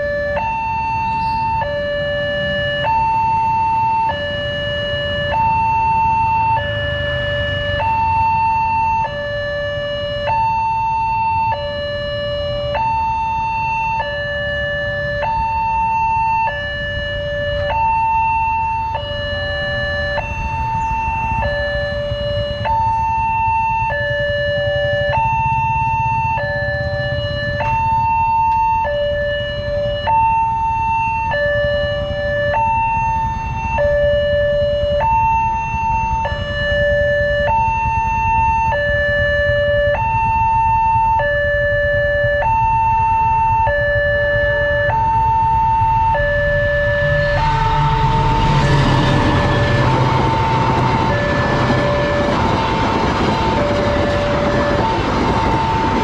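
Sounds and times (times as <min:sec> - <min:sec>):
level crossing two-tone alarm: 0:00.0 - 0:56.0
train rushing past: 0:46.2 - 0:56.0.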